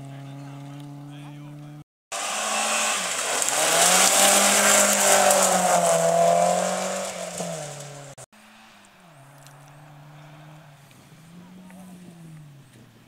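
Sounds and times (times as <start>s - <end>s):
rally car engine at high revs: 0.0s - 13.0s
tyres hissing and gravel thrown: 2.2s - 8.8s.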